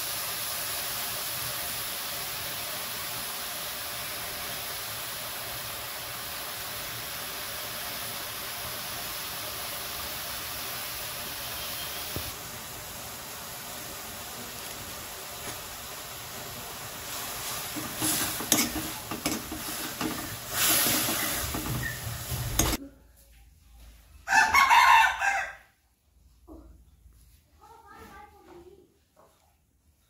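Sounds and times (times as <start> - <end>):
mushrooms sizzling in a wok: 0.0 - 22.8.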